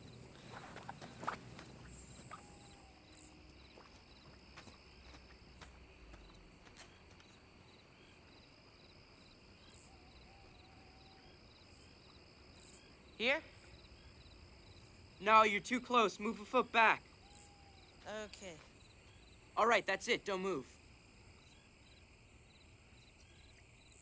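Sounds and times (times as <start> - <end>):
crickets chirping: 0.0 - 24.0.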